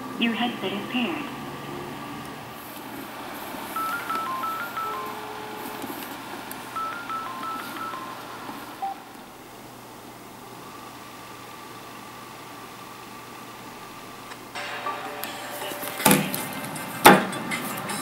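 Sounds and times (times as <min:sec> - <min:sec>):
high beep ring melody: 0:03.8 - 0:05.8, 0:06.8 - 0:09.0.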